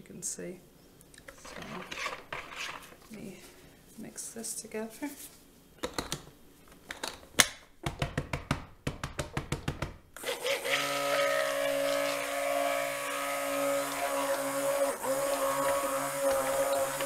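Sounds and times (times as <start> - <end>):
immersion blender running: 10.2 - 17.0.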